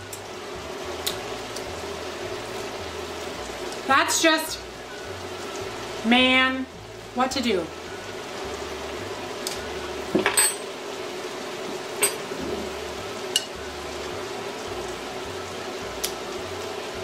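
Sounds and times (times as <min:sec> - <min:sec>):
sauce sizzling in a skillet: 0:00.0 - 0:17.0.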